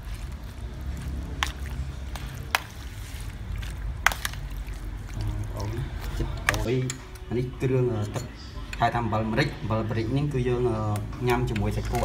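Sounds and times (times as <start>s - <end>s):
meat squished in a bowl: 0.0s - 7.4s.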